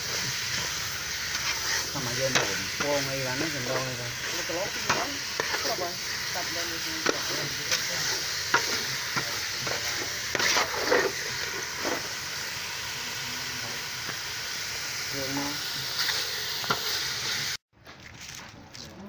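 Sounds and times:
meat sizzling in a pot: 0:00.0 - 0:17.6
metal ladle scraping and clinking: 0:00.5 - 0:05.9, 0:07.0 - 0:12.1.

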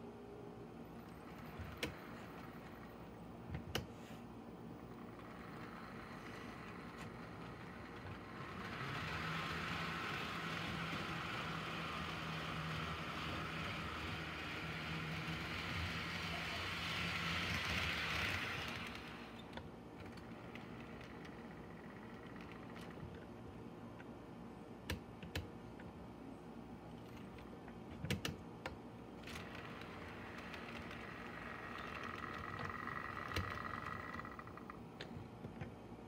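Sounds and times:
model train motor hum: 0:01.0 - 0:03.2, 0:04.8 - 0:23.0, 0:29.2 - 0:34.8
wheels rattling on rails: 0:07.2 - 0:19.3.

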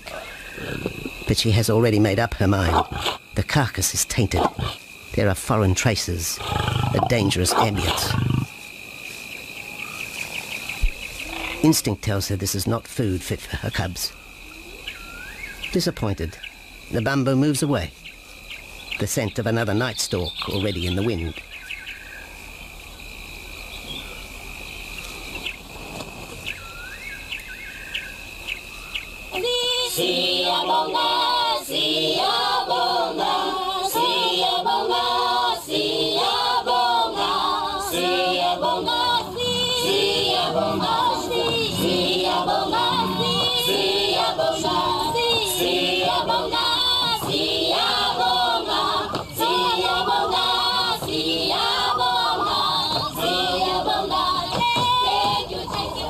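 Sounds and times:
chirps: 0:17.5 - 0:23.0, 0:26.4 - 0:29.2, 0:47.7 - 0:54.3
choir singing: 0:29.4 - 0:56.0.

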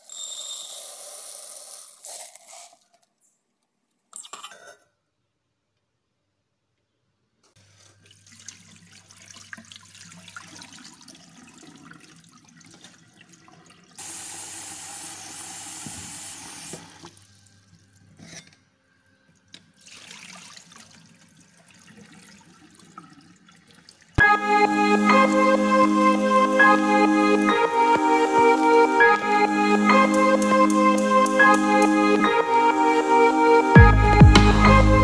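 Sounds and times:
water poured into steel sink: 0:00.8 - 0:03.1, 0:19.8 - 0:24.2
kitchen tap running: 0:08.1 - 0:17.2.

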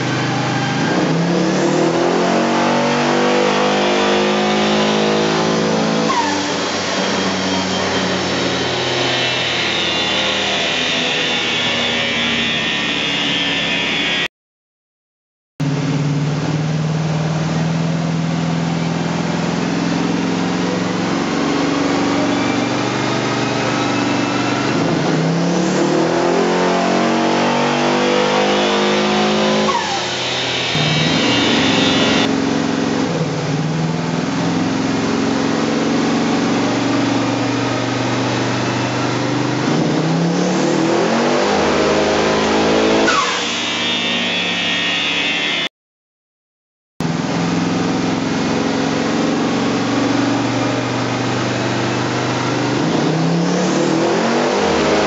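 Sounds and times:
car engine revving under load: 0:19.1 - 0:33.4.

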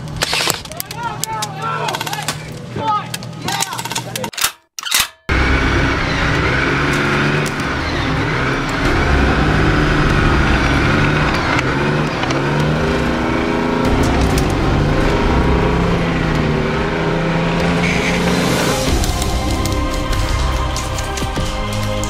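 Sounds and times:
tracked vehicle engine under load: 0:04.1 - 0:22.0.

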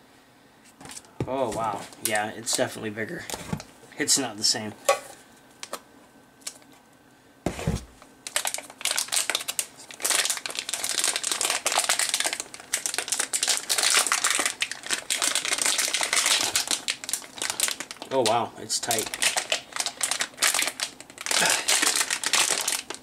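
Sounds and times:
plastic bag crinkling: 0:08.2 - 0:23.0.

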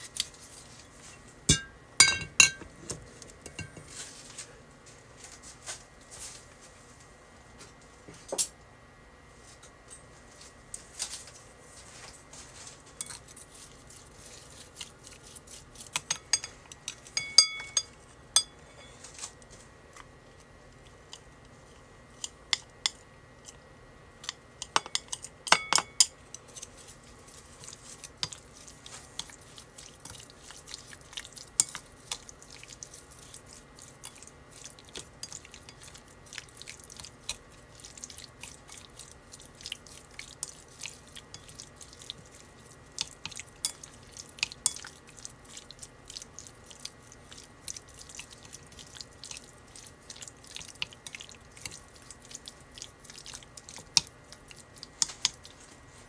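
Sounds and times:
chopsticks scraping a ceramic bowl: 0:13.0 - 0:19.2, 0:24.2 - 0:36.0, 0:55.0 - 0:56.0.

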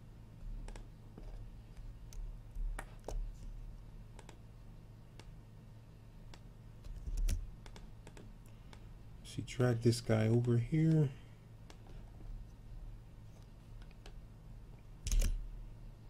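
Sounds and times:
faint low hum: 0:00.0 - 0:16.0
mouse and keyboard clicks: 0:00.6 - 0:01.4, 0:06.3 - 0:08.8, 0:15.0 - 0:15.4.

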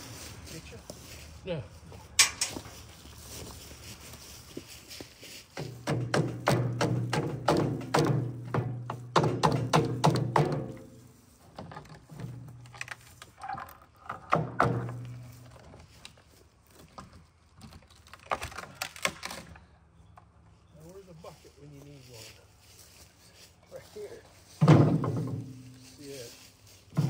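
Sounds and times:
wooden boards knocking: 0:05.6 - 0:11.0, 0:14.1 - 0:15.2, 0:24.6 - 0:25.7.

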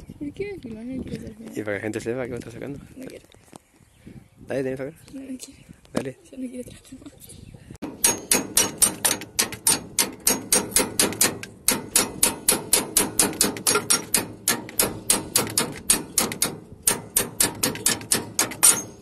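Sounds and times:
hammer striking metal: 0:07.8 - 0:19.0.

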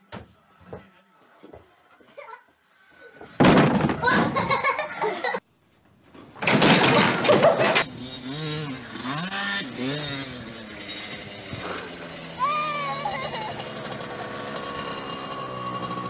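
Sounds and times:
dirt bike engine revving: 0:07.5 - 0:16.0.

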